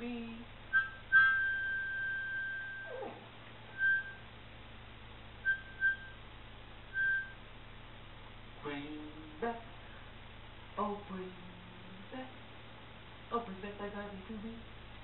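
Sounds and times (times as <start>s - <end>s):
dog whining: 0.8s - 4.2s
dog whimper sliding downward: 2.7s - 4.1s.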